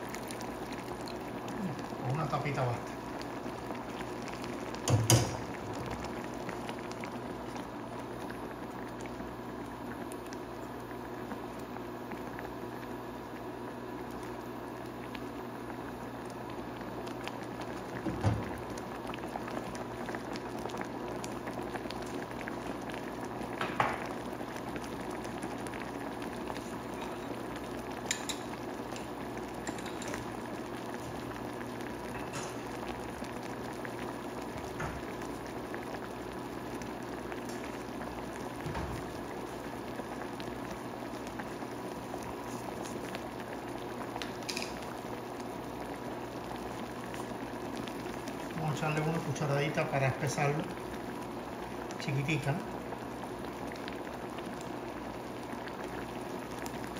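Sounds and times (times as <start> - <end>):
jam bubbling in a pan: 0.0 - 56.9.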